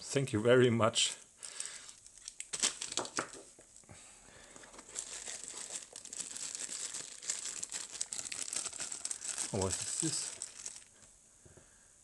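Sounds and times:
plastic bag crinkling: 0:01.4 - 0:03.8, 0:04.4 - 0:11.0.

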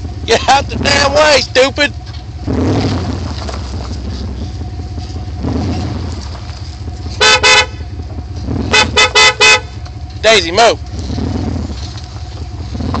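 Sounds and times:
car engine idling: 0:00.0 - 0:13.0
car horn blasts: 0:07.0 - 0:10.0.

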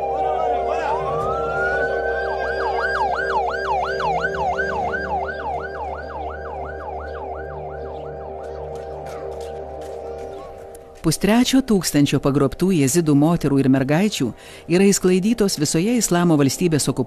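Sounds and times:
ambulance siren wailing and yelping: 0:00.0 - 0:09.4.

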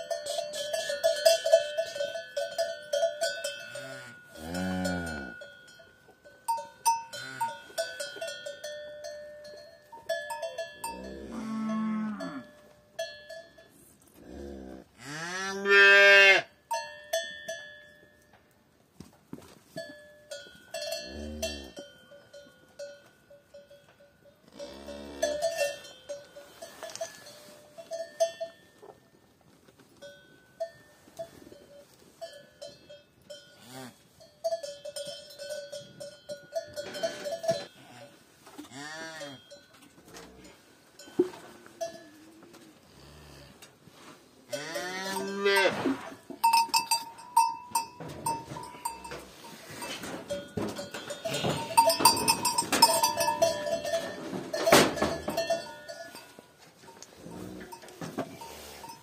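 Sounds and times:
calves mooing: 0:03.7 - 0:05.4, 0:10.8 - 0:12.5, 0:14.2 - 0:16.5, 0:38.6 - 0:39.4, 0:44.5 - 0:46.2
small bell ringing: 0:05.0 - 0:11.2, 0:34.2 - 0:37.7, 0:46.4 - 0:56.4.

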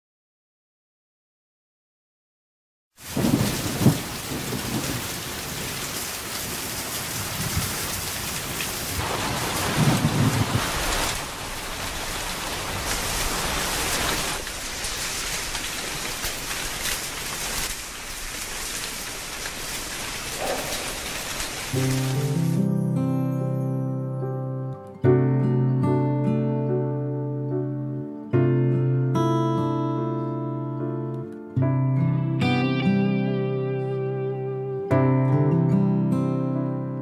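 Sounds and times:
thunder rumbling: 0:03.0 - 0:06.0, 0:07.2 - 0:17.6, 0:19.1 - 0:22.4
heavy rain: 0:03.0 - 0:22.7.

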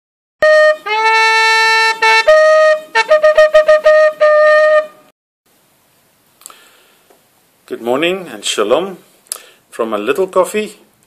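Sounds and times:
shofar blasts: 0:00.4 - 0:05.1.

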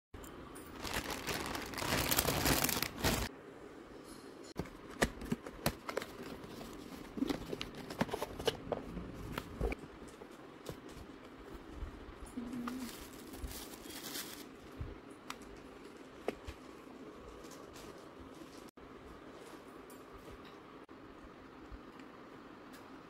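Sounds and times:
plastic mailer crinkling and tearing: 0:00.8 - 0:03.3.

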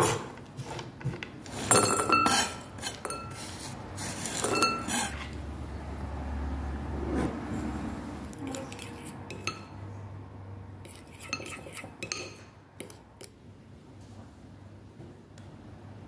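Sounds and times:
spoon clinking in ceramic bowl: 0:01.7 - 0:03.5, 0:04.3 - 0:05.3, 0:08.4 - 0:09.8, 0:10.9 - 0:13.4.

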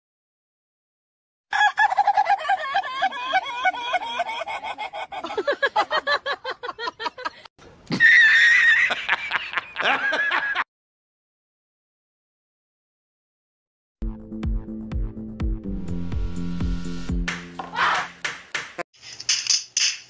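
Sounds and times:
loud burst of laughter: 0:01.5 - 0:10.6.

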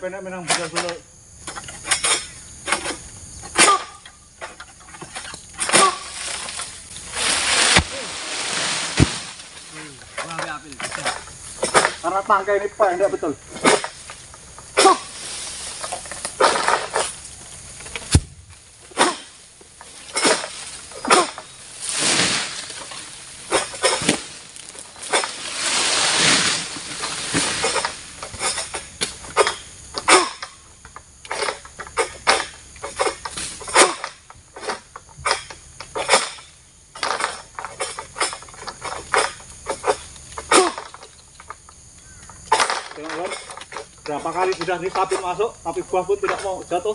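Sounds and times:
sickle rasping against stalk: 0:04.5 - 0:12.2, 0:13.4 - 0:30.4.

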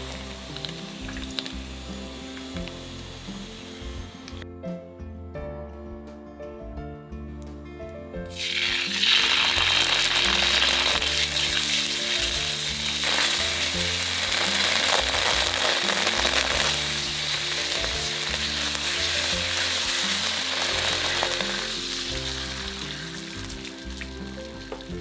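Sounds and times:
tomato paste sizzling in oil: 0:00.0 - 0:04.4, 0:08.3 - 0:25.0
background music: 0:00.0 - 0:25.0
spatula stirring: 0:08.4 - 0:24.1.

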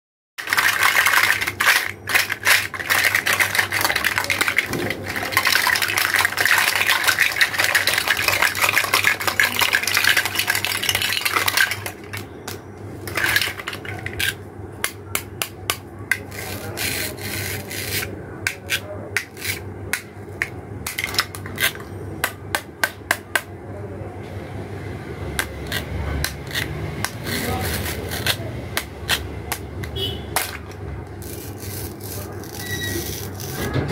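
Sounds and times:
plastic toys rattling together: 0:00.4 - 0:14.4, 0:16.1 - 0:18.1, 0:20.4 - 0:21.9, 0:30.4 - 0:33.7
plastic pieces clicking and tapping: 0:00.4 - 0:17.0.

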